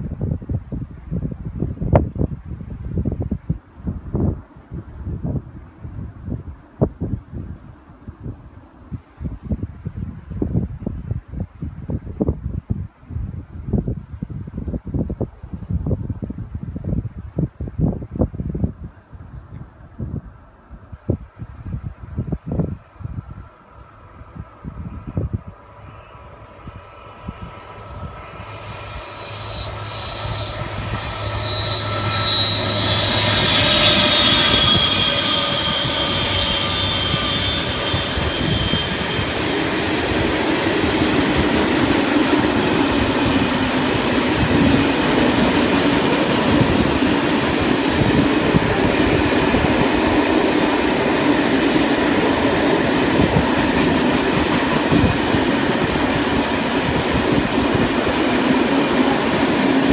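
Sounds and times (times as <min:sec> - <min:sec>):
freight train passing: 0:19.8 - 0:59.9.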